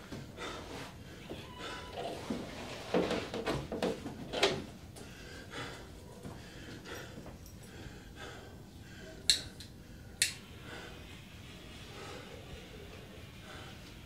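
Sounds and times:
sharp clicks: 9.3 - 10.4.

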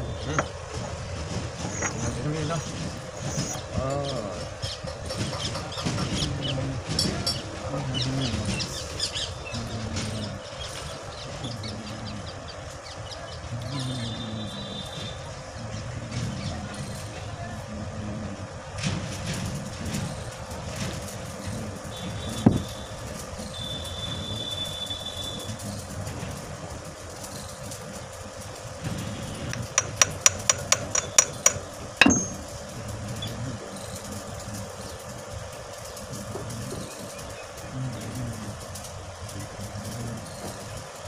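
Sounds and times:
metal-on-metal knocks: 1.6 - 3.6, 29.5 - 32.6.

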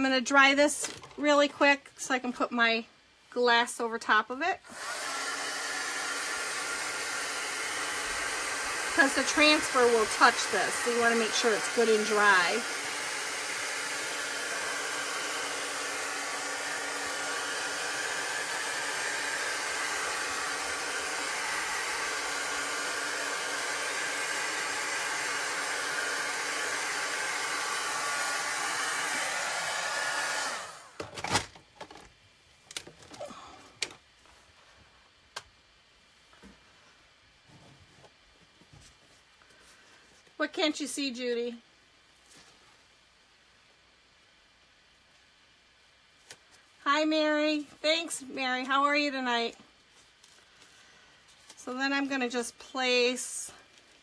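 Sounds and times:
heat gun blowing: 4.6 - 31.0.

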